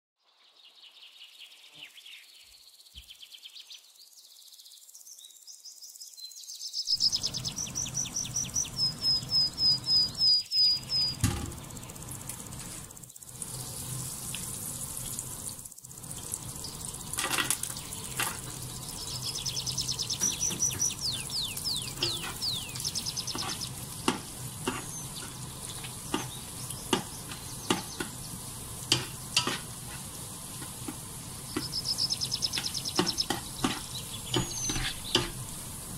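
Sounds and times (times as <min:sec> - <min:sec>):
bird chirping: 0:00.2 - 0:12.1, 0:15.9 - 0:29.3, 0:31.3 - 0:35.3
butter and oil sizzling: 0:06.9 - 0:35.9
garlic frying: 0:06.9 - 0:35.9
spatula scraping a pan: 0:21.9 - 0:22.6, 0:23.2 - 0:31.8, 0:32.5 - 0:35.6.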